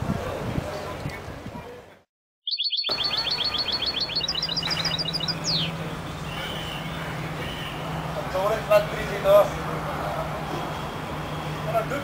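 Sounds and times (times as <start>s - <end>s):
songbird singing: 2.4s - 8.3s.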